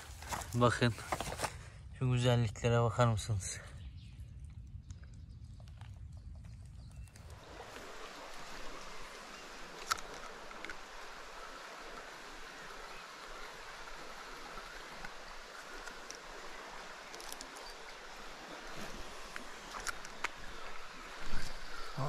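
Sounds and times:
stream water rushing: 7.3 - 22.0.

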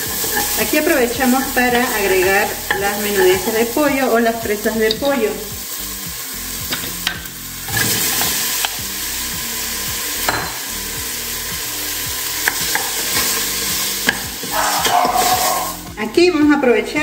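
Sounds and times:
meat sizzling in hot oil: 0.0 - 17.0
wooden spoon scraping a pot: 14.5 - 15.8.

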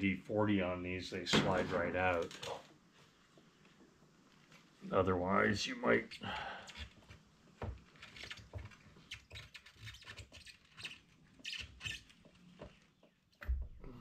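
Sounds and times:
rubber squeaks: 7.8 - 13.1.

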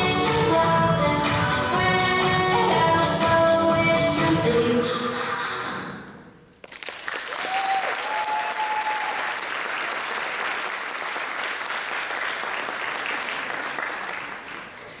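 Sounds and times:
audience applauding: 6.6 - 15.0
person cheering high: 7.4 - 9.4.

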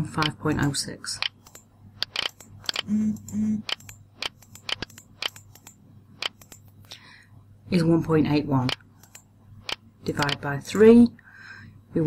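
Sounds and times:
steady low hum: 0.0 - 12.0
computer mouse clicking: 0.2 - 0.4, 1.2 - 6.9, 8.6 - 10.4.

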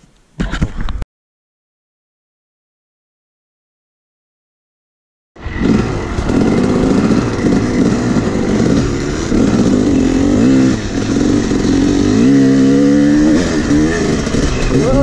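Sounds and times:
dirt bike engine revving: 5.4 - 15.0.

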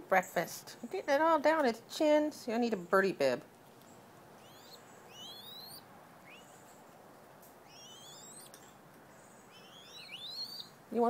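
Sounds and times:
young dove squeaky begging calls: 4.4 - 6.5, 7.6 - 8.6, 9.5 - 10.8.

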